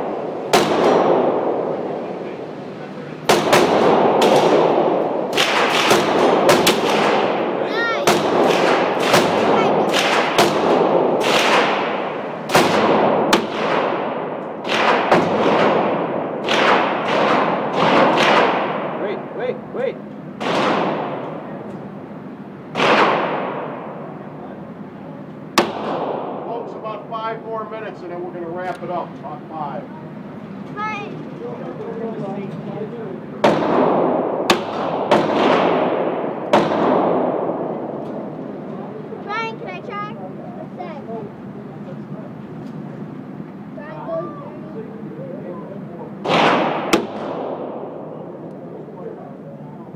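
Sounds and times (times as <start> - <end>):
gunshots echoing indoors: 0.0 - 2.6, 3.2 - 19.4, 20.4 - 21.6, 22.7 - 24.4, 25.6 - 26.7, 33.4 - 38.6, 46.2 - 48.4.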